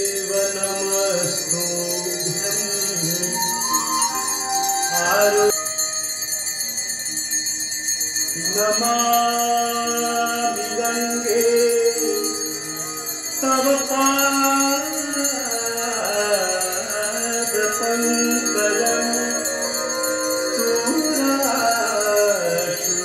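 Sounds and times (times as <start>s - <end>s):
person singing a hymn: 0.0s - 5.8s, 8.4s - 23.0s
bells ringing: 0.0s - 23.0s.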